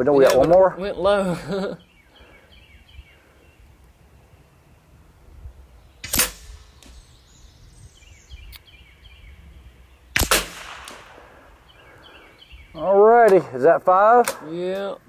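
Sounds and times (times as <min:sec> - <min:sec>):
rifle shot: 0:06.0 - 0:06.8, 0:10.1 - 0:11.5.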